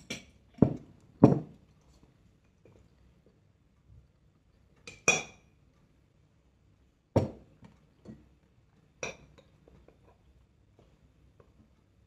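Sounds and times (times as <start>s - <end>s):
glass set down on wooden table: 0.6s - 1.5s
tableware clinking: 4.9s - 5.4s.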